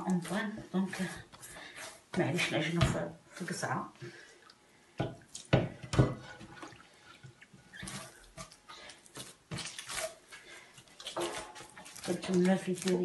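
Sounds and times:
dough squelching and slapping: 0.0s - 4.2s, 7.7s - 13.0s.

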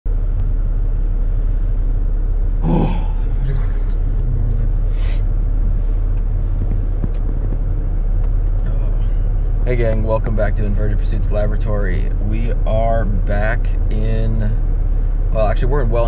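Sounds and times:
car cabin rumble: 0.1s - 16.0s
breathy sounds: 2.6s - 6.2s.

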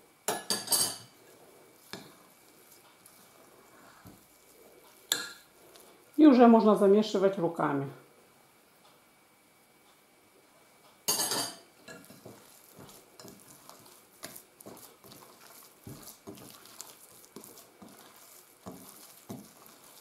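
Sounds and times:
hands kneading soft dough: 1.2s - 6.8s, 11.9s - 20.0s.

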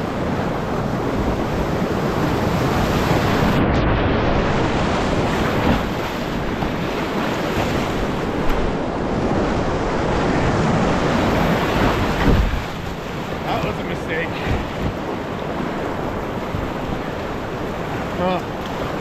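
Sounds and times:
whitewater rapids rushing: 4.2s - 19.0s.

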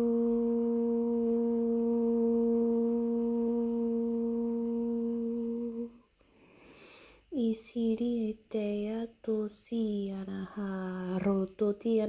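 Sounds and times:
steady low tone: 0.0s - 6.2s.

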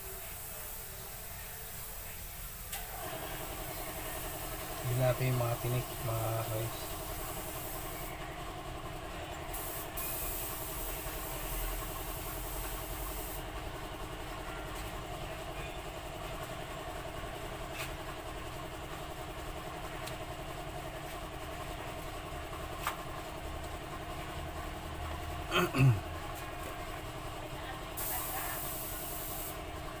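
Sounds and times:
hiss: 0.0s - 8.1s, 9.5s - 13.4s, 28.0s - 29.6s
mechanical hum with fluttering pulse: 0.2s - 30.0s.

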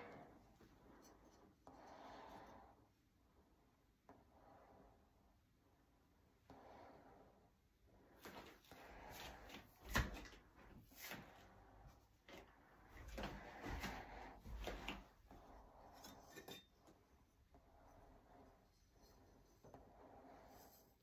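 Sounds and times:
glass and ceramic handling: 15.8s - 17.0s.

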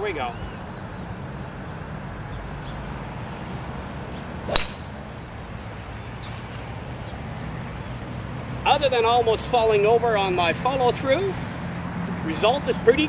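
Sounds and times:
golf club striking ball: 4.4s - 5.2s.

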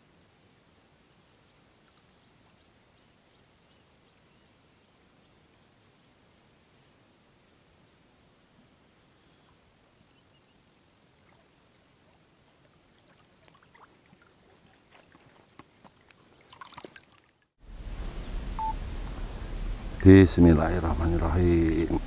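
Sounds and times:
steady hiss: 0.0s - 13.9s, 17.6s - 22.0s
water splashing from wading: 9.5s - 17.5s
short beep: 18.6s - 18.8s.

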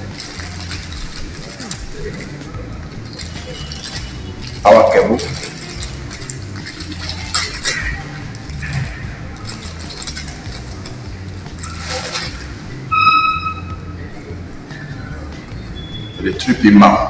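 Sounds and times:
plastic bags crinkling: 0.0s - 12.9s.

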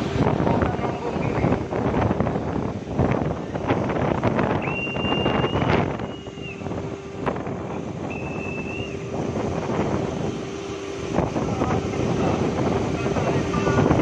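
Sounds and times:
wind buffeting microphone: 0.0s - 14.0s
high steady tone: 4.4s - 14.0s.

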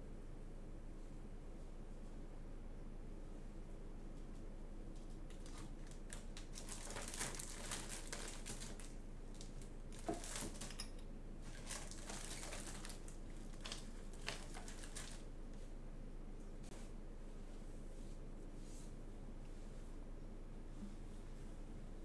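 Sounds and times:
faint clicks and rustling: 4.1s - 15.7s.

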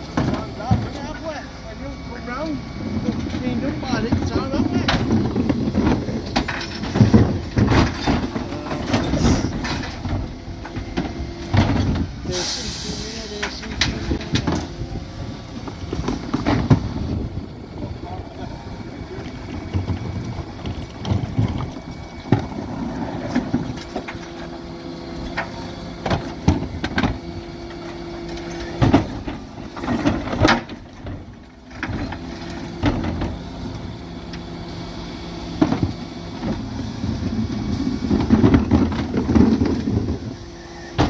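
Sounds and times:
refuse truck hydraulics humming: 0.0s - 29.9s
plastic bins banging: 15.7s - 17.2s, 38.0s - 40.2s.

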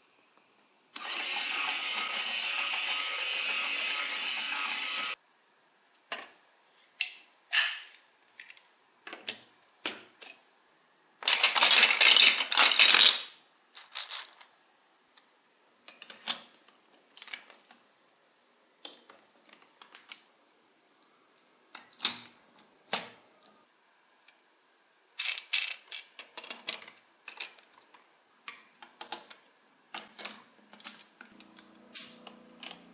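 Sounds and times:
plastic blocks clattering: 11.2s - 14.5s, 25.2s - 28.0s
plastic blocks clicking: 11.2s - 14.5s, 25.2s - 31.6s.

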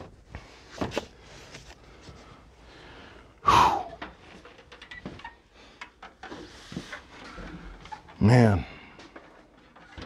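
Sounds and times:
man breathing out sharply: 2.8s - 4.0s.

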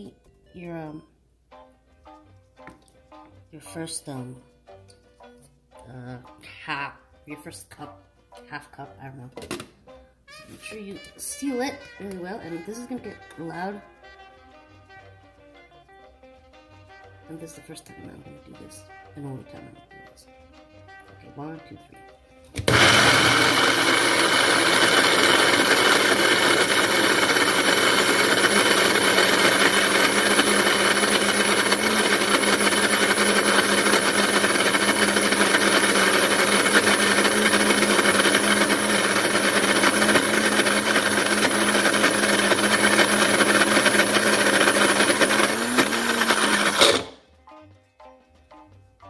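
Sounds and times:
blender motor grinding: 22.6s - 47.2s.

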